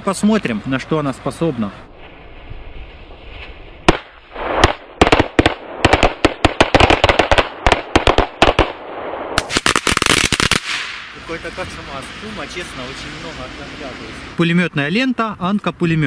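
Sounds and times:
firecrackers going off: 0:02.0 - 0:14.4.

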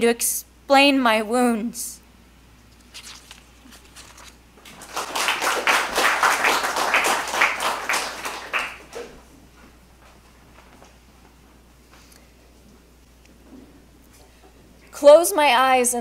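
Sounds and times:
audience applauding: 0:04.6 - 0:09.2.

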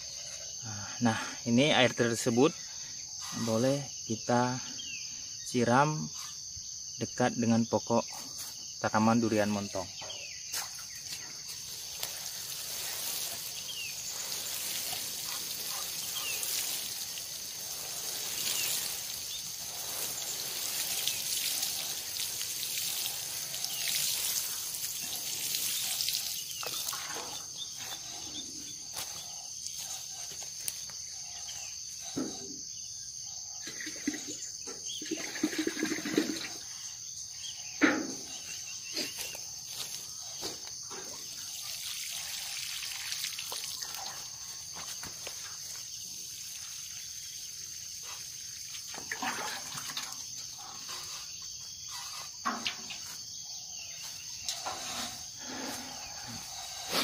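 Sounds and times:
high insect chirring: 0:00.0 - 0:57.0
water pouring onto leaves and soil: 0:10.7 - 0:28.2, 0:35.0 - 0:36.6, 0:39.0 - 0:53.2.

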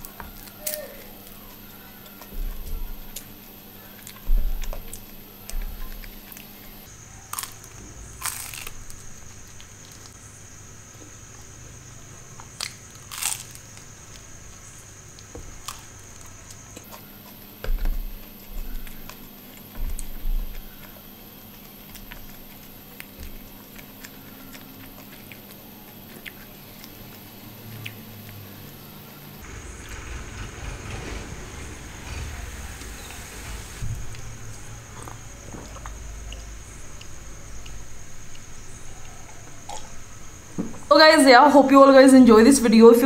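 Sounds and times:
crunchy bites: 0:00.0 - 0:10.2, 0:12.2 - 0:28.9
soft chewing: 0:00.0 - 0:10.2, 0:15.1 - 0:29.2
dull thumps: 0:04.2 - 0:06.9, 0:17.6 - 0:20.9.

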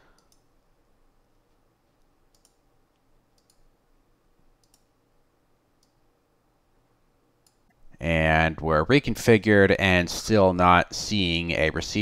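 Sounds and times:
low room hum: 0:00.0 - 0:12.0
computer mouse clicks: 0:00.1 - 0:00.5, 0:02.3 - 0:03.7, 0:04.6 - 0:04.9, 0:05.8 - 0:06.0, 0:07.4 - 0:07.8.

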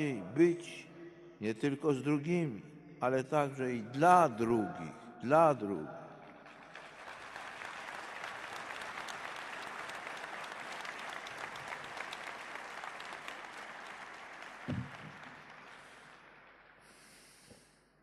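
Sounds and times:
audience applauding: 0:06.4 - 0:17.4.

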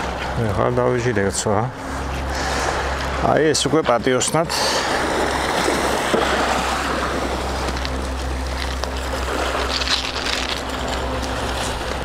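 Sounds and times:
sea waves: 0:00.0 - 0:12.0
wind: 0:00.0 - 0:12.0
low rumble: 0:04.5 - 0:12.0.

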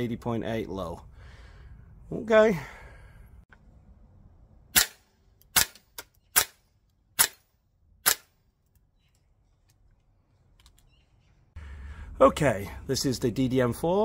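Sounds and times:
airsoft rifle shots: 0:04.7 - 0:06.6, 0:07.2 - 0:08.3.

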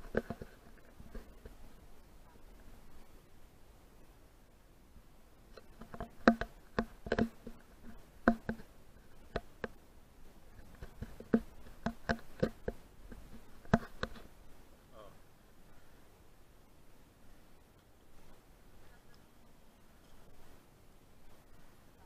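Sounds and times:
hollow knocks and clicks: 0:00.0 - 0:01.6, 0:05.5 - 0:09.8, 0:10.5 - 0:14.3.

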